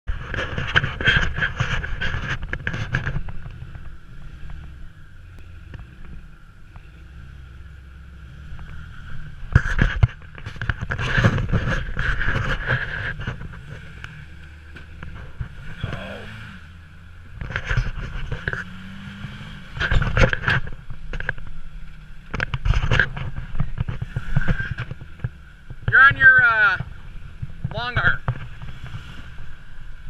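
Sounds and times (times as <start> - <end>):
engine running at low revs: 0.0 - 30.0.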